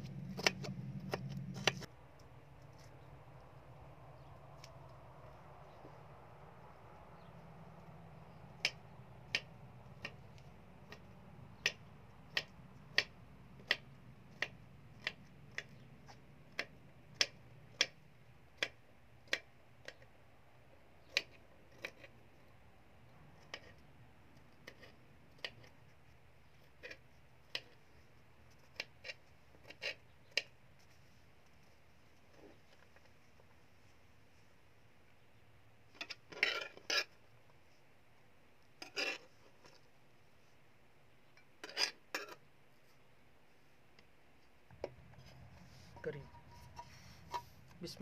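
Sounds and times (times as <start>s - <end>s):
knife chopping on cutting board: 0.1s - 1.9s.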